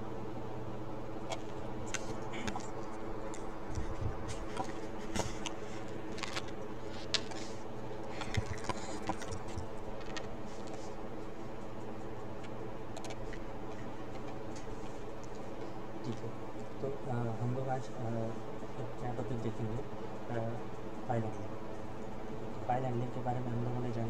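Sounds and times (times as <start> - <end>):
electrical hum: 0.0 - 24.0
headset handling clicks and rustles: 1.2 - 10.9, 12.4 - 15.5.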